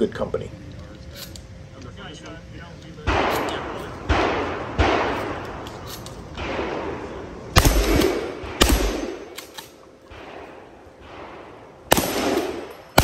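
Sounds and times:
gunshots with echo: 3.1s - 5.4s, 6.4s - 9.4s, 10.1s - 13.0s.

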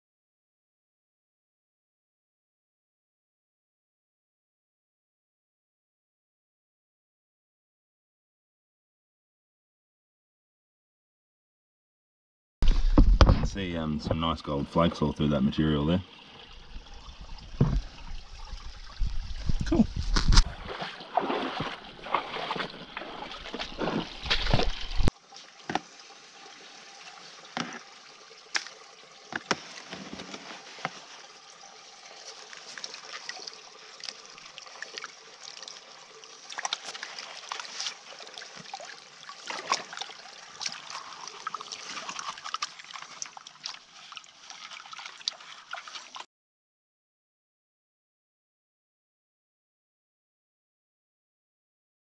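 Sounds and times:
water sloshing in a pan: 14.8s - 46.3s.

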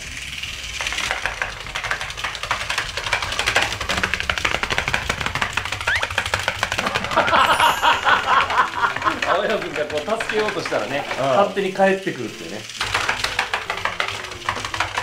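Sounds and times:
plastic feet clattering on table: 0.8s - 11.8s, 12.6s - 15.0s
men laughing loudly: 6.7s - 9.9s.

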